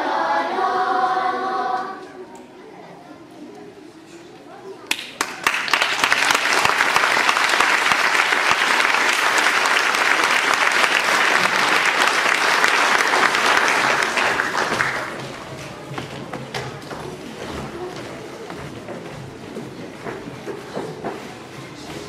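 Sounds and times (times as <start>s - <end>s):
audience applauding: 4.9s - 15.4s.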